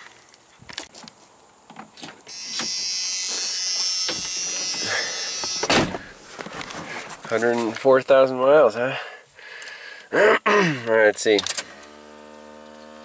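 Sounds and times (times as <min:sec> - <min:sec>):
high-pitched buzzing: 0:02.3 - 0:05.9, 0:11.7 - 0:13.0
thump: 0:05.6 - 0:06.1.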